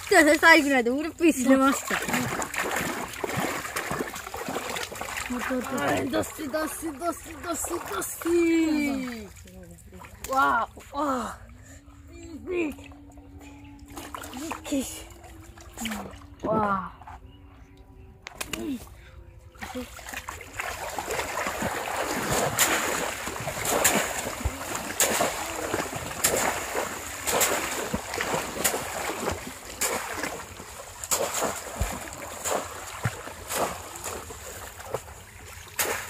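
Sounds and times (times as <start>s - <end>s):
wading through shallow water: 0.0s - 17.8s, 18.6s - 36.0s
sharp splash: 1.5s - 10.4s, 19.6s - 36.0s.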